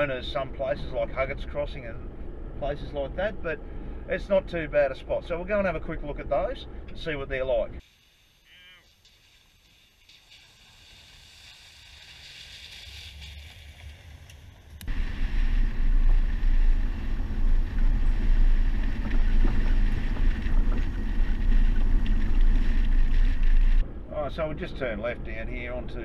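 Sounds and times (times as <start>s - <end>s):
vehicle driving on gravel: 11.8s - 26.0s
wind buffeting camera: 13.2s - 26.0s.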